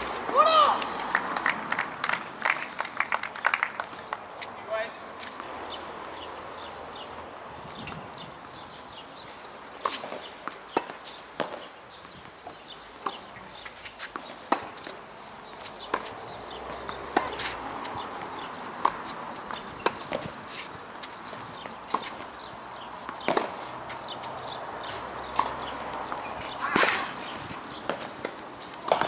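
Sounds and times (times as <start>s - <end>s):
tennis balls bouncing on court: 0.0s - 29.0s
tennis balls struck by rackets: 9.7s - 11.7s, 12.4s - 29.0s.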